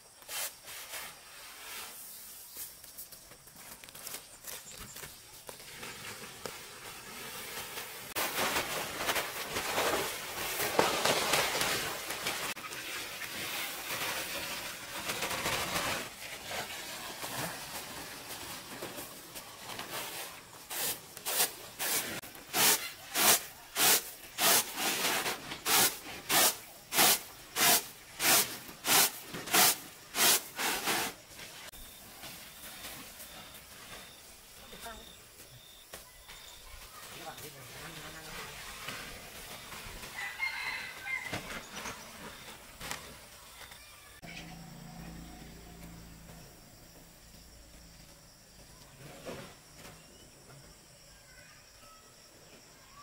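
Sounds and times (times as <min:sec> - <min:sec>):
dry grain sliding: 0:00.2 - 0:02.7, 0:04.9 - 0:34.9, 0:37.1 - 0:43.6
grain swishing in winnowing tray: 0:00.2 - 0:02.8, 0:05.3 - 0:35.2, 0:36.9 - 0:43.3
plastic tarp rustling: 0:00.3 - 0:35.2, 0:36.6 - 0:44.3.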